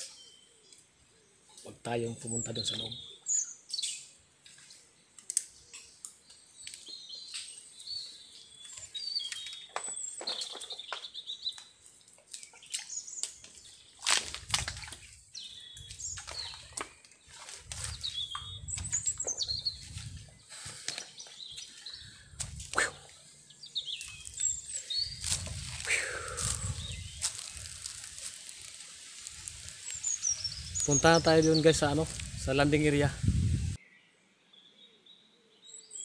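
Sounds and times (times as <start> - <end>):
birds chirping and whistling: 2.2 - 4.1, 6.6 - 11.8, 14.8 - 33.8.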